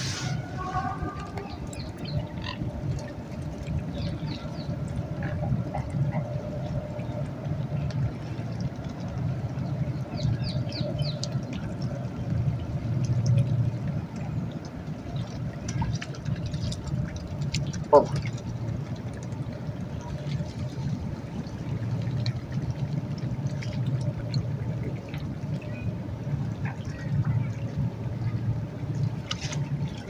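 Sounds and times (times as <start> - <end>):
steady low rumble: 0.0 - 30.0.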